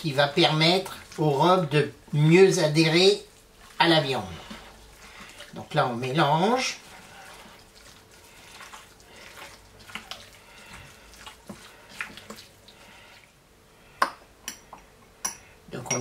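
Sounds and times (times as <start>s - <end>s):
wet squelching of kneaded meat: 0.0s - 14.4s
metal spoon clinking on glass: 15.2s - 16.0s.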